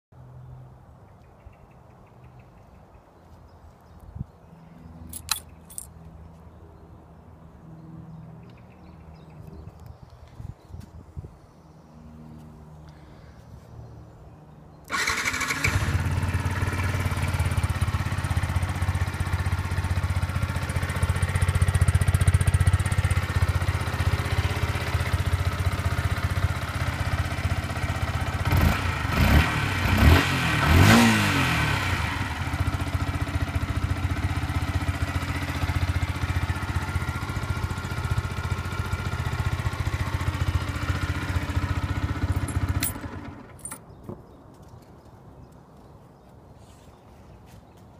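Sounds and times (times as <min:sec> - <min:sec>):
motorcycle engine idling: 0:14.9 - 0:29.2, 0:31.7 - 0:43.8
motorcycle engine starting: 0:14.9 - 0:44.0.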